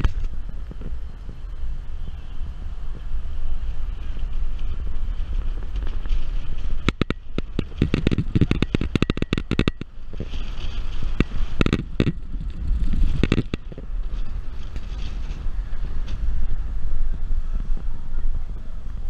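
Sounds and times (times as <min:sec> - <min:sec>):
wind and road noise rumble: 0:00.0 - 0:19.0
rapid crackling clicks: 0:04.0 - 0:15.4.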